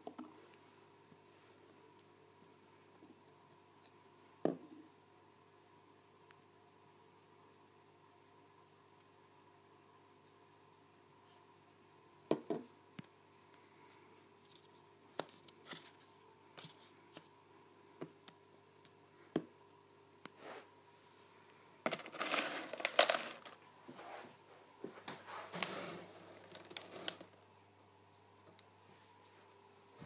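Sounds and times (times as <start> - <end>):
gravel rattling in a container: 21.9 - 23.6, 25.5 - 27.4.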